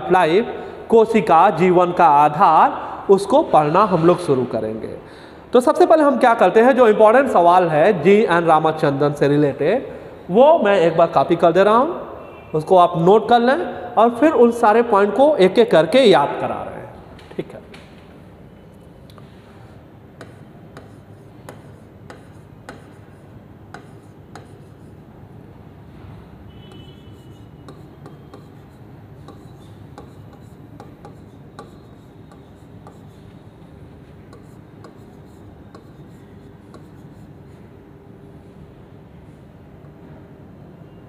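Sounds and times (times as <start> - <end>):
stylus tapping and scraping on glass: 27.6 - 33.2.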